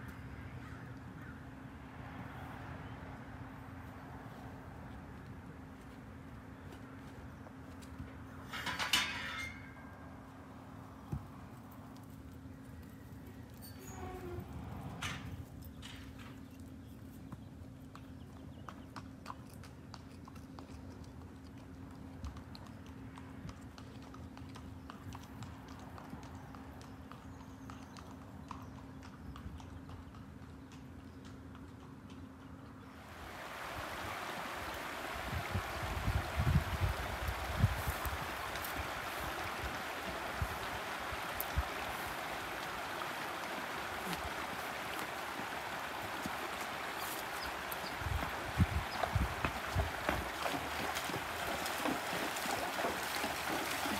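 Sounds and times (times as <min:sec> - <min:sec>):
light clicks from horses: 0:03.7 - 0:33.0, 0:34.4 - 0:53.9
creek water over rocks: 0:33.0 - 0:53.9.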